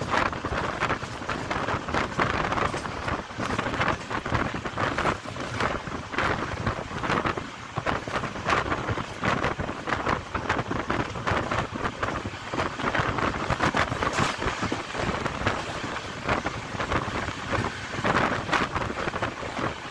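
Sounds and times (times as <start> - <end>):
train wheels clattering on rails: 0.0 - 19.9
wind rushing over microphone: 0.0 - 19.9.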